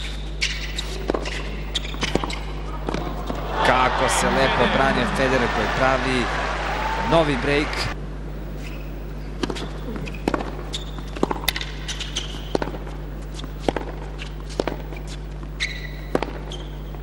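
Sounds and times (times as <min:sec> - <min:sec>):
tennis shoes squeaking: 0:00.0 - 0:03.6, 0:08.6 - 0:17.0
ball bouncing: 0:01.1 - 0:03.4.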